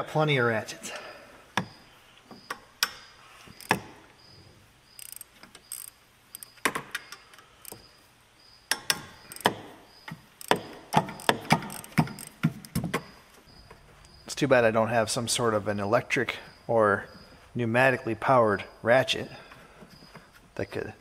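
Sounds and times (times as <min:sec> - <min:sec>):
tools and bolts clinking: 0:02.4 - 0:04.0, 0:04.9 - 0:07.9, 0:08.7 - 0:13.8
ratchet clicking: 0:02.8 - 0:03.9, 0:04.9 - 0:07.9, 0:08.7 - 0:09.7, 0:10.3 - 0:12.9.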